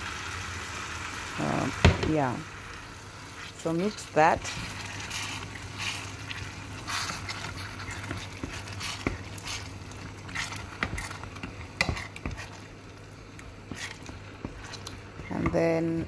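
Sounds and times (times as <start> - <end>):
spoon scraping and squelching: 3.3 - 15.5.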